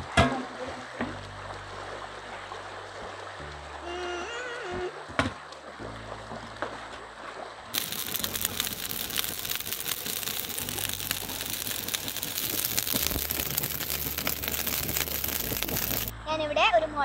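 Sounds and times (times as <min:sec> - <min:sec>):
dense crackling and rustling: 0:07.8 - 0:16.1.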